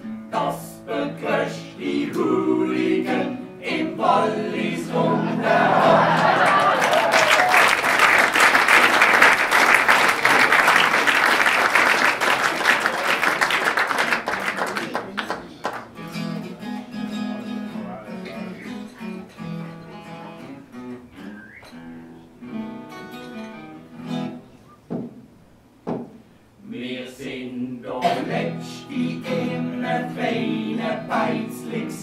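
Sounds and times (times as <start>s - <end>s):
acoustic guitar strumming chords: 0.0s - 6.4s, 16.0s - 24.6s, 28.0s - 32.0s
audience applauding: 5.4s - 16.0s.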